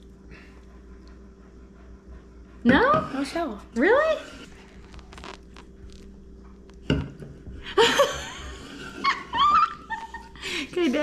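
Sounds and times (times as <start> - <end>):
woman laughing: 7.6 - 11.0.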